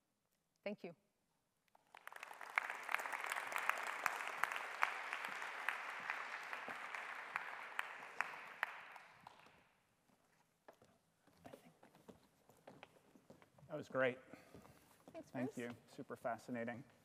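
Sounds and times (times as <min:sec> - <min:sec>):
audience applauding: 0:01.8 - 0:09.6.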